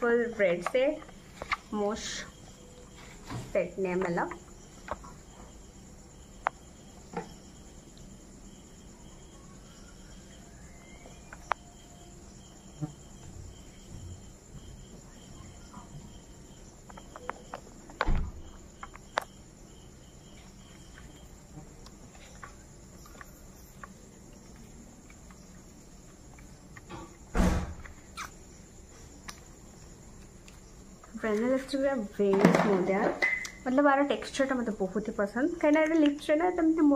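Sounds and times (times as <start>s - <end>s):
crickets chirping: 0.0s - 36.9s
loud thumps: 26.9s - 27.9s.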